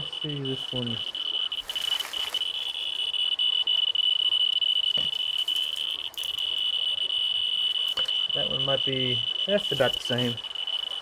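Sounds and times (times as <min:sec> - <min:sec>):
continuous high-pitched beeping: 0:00.0 - 0:11.0
handling rustle: 0:01.6 - 0:02.9, 0:05.1 - 0:06.5.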